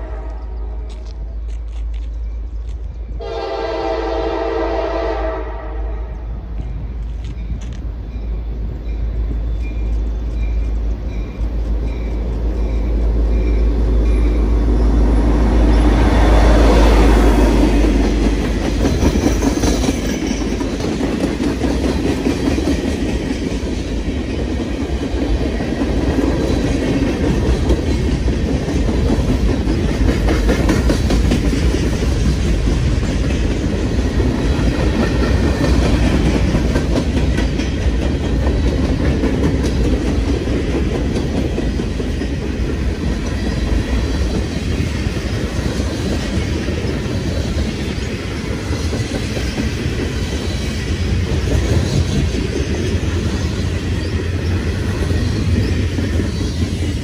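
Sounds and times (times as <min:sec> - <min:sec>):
low train rumble: 0:00.0 - 0:57.0
train wheels clacking on rails: 0:06.6 - 0:57.0.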